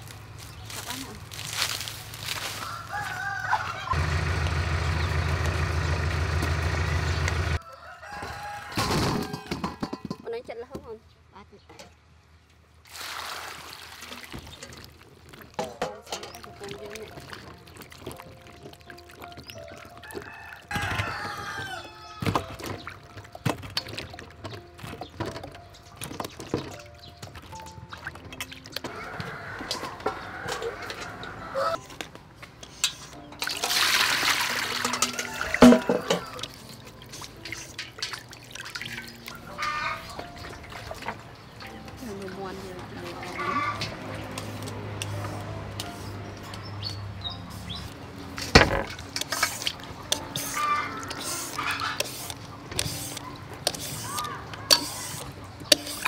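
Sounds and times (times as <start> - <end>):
water dripping: 12.9 - 20.2, 22.4 - 25.0, 32.0 - 45.2
peeler scraping papaya: 49.2 - 56.0.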